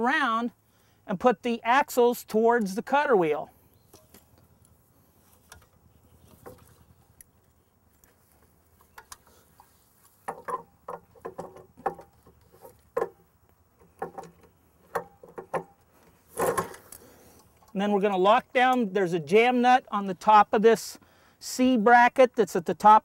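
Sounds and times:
light metal clicks and knocks: 0:08.8 - 0:13.2, 0:13.8 - 0:17.8.

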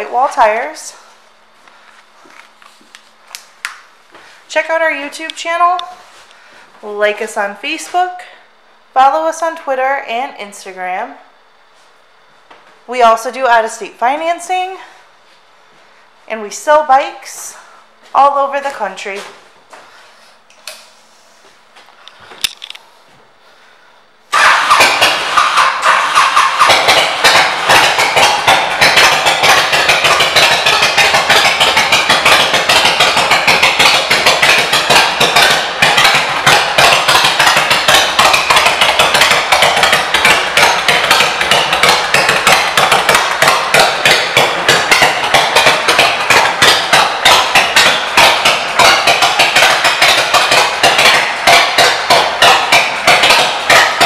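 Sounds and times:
motorcycle engine idling: 0:24.3 - 0:54.0.

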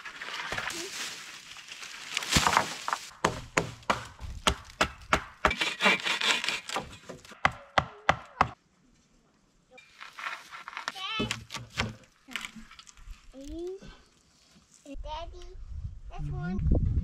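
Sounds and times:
wooden poles knocking on log wall: 0:02.4 - 0:05.6.

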